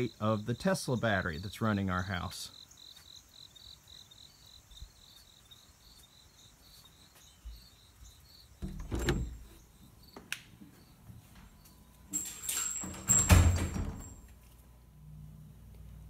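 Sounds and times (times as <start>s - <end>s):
crickets chirping: 0.0s - 14.3s
door latch click: 8.6s - 9.5s
glass door knocking and rattling: 8.6s - 9.5s, 12.8s - 14.2s.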